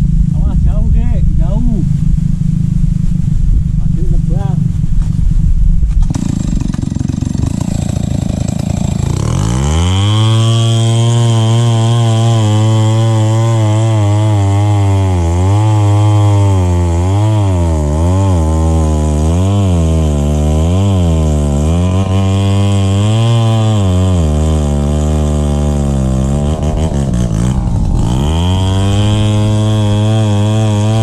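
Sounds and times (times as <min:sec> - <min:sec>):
chainsaw cutting wood: 0:05.9 - 0:31.0.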